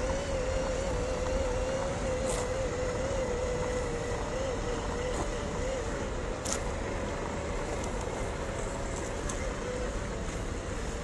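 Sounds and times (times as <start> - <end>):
toy car motor whine: 0.0 - 6.8, 9.0 - 10.8
steady rushing noise: 0.0 - 11.0.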